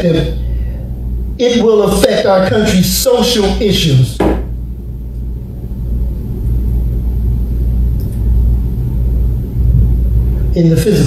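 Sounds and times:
man speaking: 1.4 - 4.2
low rumble: 4.4 - 10.6.

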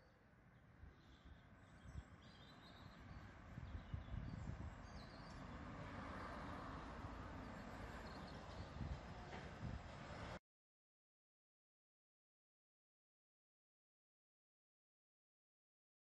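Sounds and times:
birds chirping: 1.0 - 6.6
car passing on road: 4.4 - 10.4.

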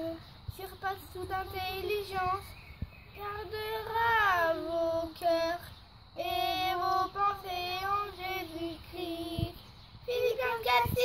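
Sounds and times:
children singing: 6.2 - 11.0.

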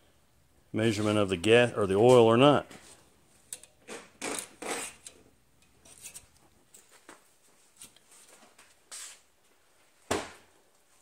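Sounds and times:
metal dipstick scraping through seal: 3.5 - 6.4.

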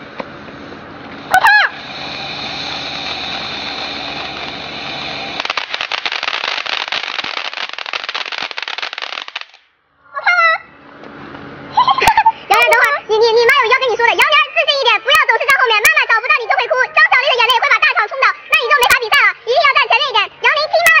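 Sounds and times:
firework hissing: 0.6 - 9.7
firework crackling: 1.1 - 9.7
short high-pitched cry: 1.3 - 1.9.

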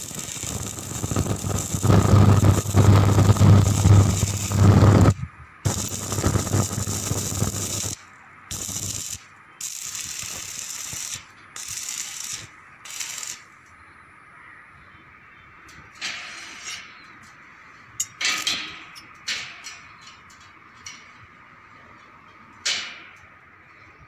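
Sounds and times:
arc welding crackling and hissing: 0.0 - 13.6.

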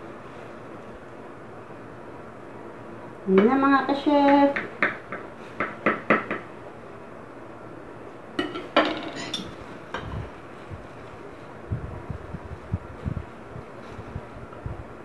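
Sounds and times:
knife clinking against a plate: 8.4 - 9.6.

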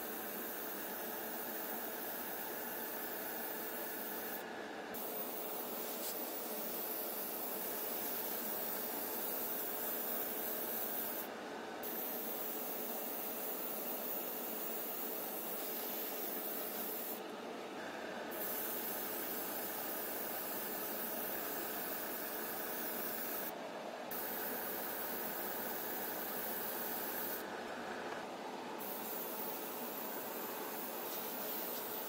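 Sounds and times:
spray gun hissing: 5.0 - 17.2, 18.3 - 23.5, 28.8 - 32.0.

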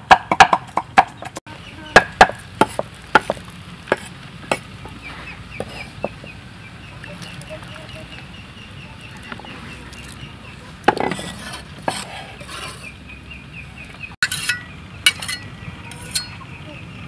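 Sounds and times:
cleaver scraping on wooden block: 2.2 - 6.2, 10.9 - 13.0, 14.2 - 15.4.

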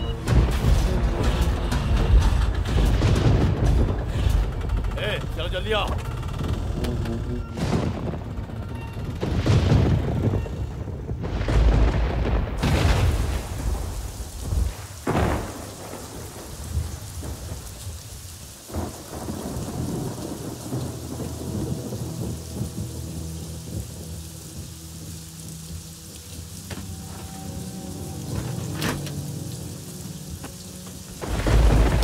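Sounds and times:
sharp thunderclaps: 0.0 - 5.2, 7.5 - 25.2, 31.2 - 32.0
steady rain: 0.0 - 32.0
thunder rumbling: 0.0 - 32.0.

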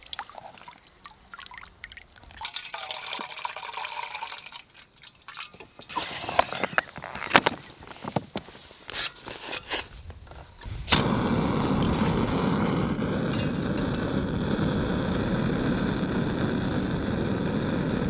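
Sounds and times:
gas stove burning hiss: 10.6 - 18.0.

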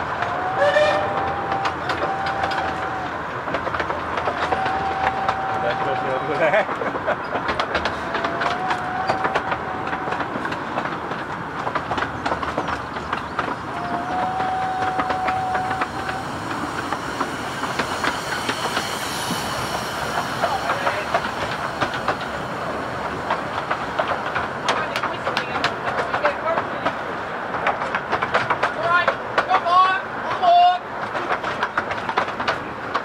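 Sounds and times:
train wheels clattering on rails: 0.0 - 33.0
steady whining tone: 11.8 - 26.6.

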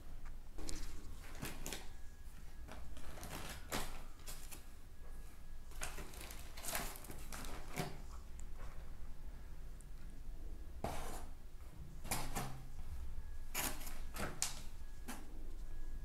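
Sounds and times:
plastic bags crinkling: 2.7 - 4.6, 5.7 - 8.0.

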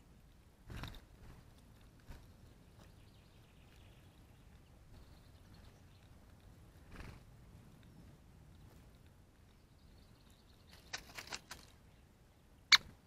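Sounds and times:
small birds pecking seed: 0.0 - 13.0
wings fluttering: 0.6 - 3.0, 6.8 - 7.3, 10.7 - 11.8
high bird chirps: 12.6 - 12.9.

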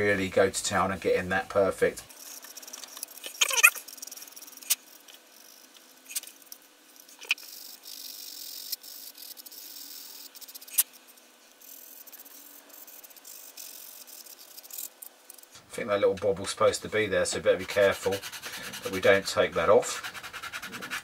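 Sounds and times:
sanding plastic scratchy hiss: 2.1 - 6.4, 7.0 - 15.0, 17.2 - 21.0.

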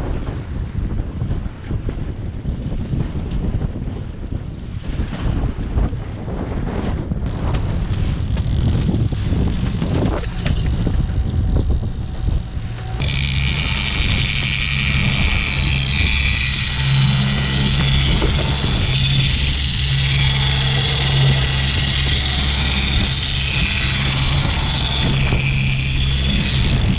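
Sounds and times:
wind buffeting microphone: 0.0 - 26.9
outboard motor running: 7.2 - 26.9.

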